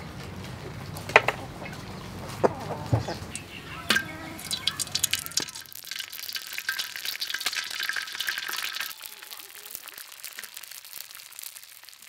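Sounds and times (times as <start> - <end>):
hot oil sizzling in a wok: 4.3 - 12.0.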